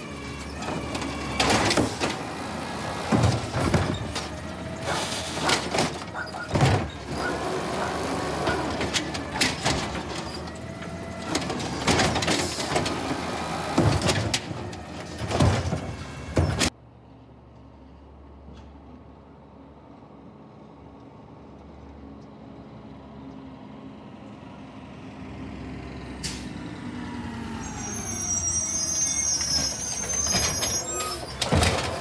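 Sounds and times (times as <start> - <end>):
garbage truck arm lifting cart: 0.0 - 16.7, 27.4 - 32.0
truck engine running: 0.0 - 16.7
cart banging against hopper: 0.4 - 16.7, 29.6 - 32.0.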